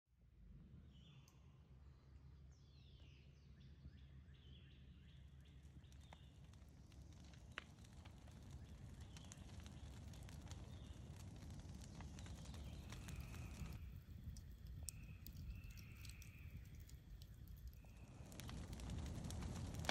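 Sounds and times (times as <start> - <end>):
soft crackles: 5.1 - 19.9
low rumble: 6.7 - 19.9
birds chirping: 11.8 - 14.0, 14.7 - 18.7.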